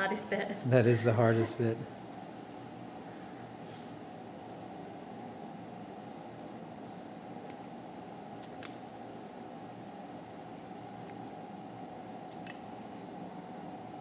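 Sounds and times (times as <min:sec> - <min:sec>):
steady background hum: 0:00.0 - 0:14.0
metal surgical instruments clicking: 0:08.4 - 0:08.8, 0:12.3 - 0:12.7.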